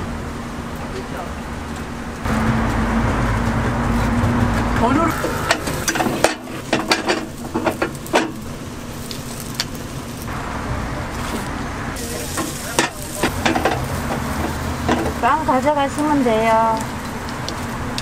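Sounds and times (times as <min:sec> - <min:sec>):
batter sizzling: 0:02.2 - 0:18.0
metal mold clicks and clanks: 0:05.5 - 0:08.4.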